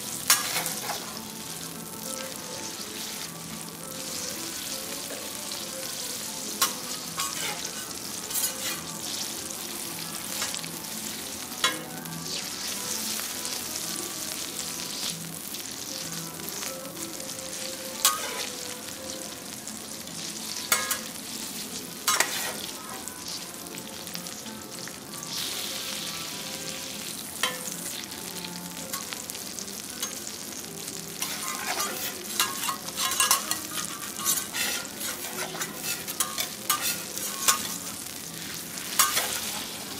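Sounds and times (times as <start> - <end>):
food sizzling on griddle: 0.0 - 39.9
metal spatulas clinking on plate: 0.3 - 1.0, 6.6 - 8.9, 18.0 - 18.5, 20.7 - 21.1, 22.1 - 22.6, 31.2 - 37.9, 38.9 - 39.8
spatula scraping griddle: 0.3 - 1.2, 6.6 - 9.2, 22.0 - 22.7, 31.2 - 38.0.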